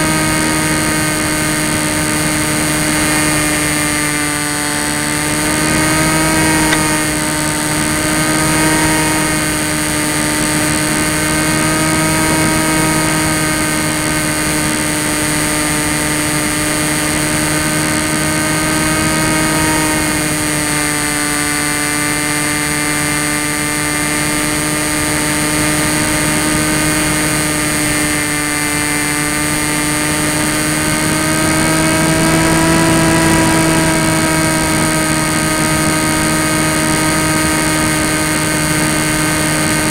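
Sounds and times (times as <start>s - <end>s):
electric motor and propeller whine: 0.0s - 39.9s.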